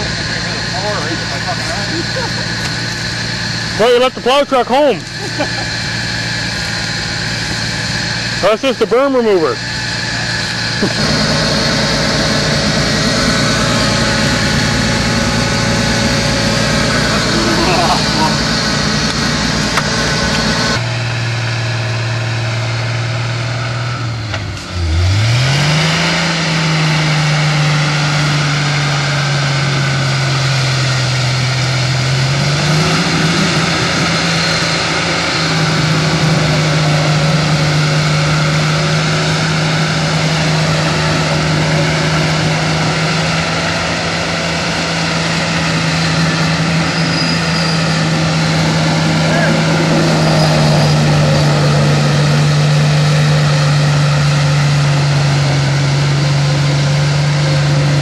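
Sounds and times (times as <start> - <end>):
pickup engine revving hard: 0.0 - 58.0.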